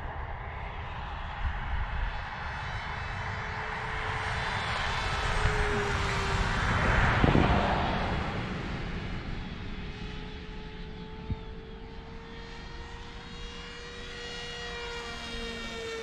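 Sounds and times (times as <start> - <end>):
wind rushing: 4.9 - 10.0
electric model plane motor whine: 10.2 - 16.0.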